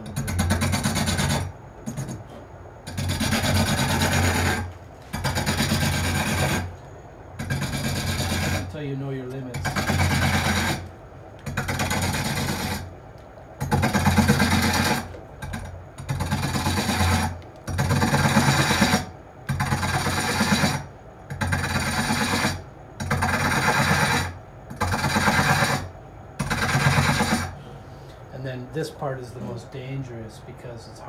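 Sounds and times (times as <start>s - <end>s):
tool scraping wood on lathe: 2.9s - 6.7s, 7.4s - 8.8s, 9.6s - 10.9s, 11.5s - 12.9s, 13.8s - 15.2s, 16.0s - 27.6s.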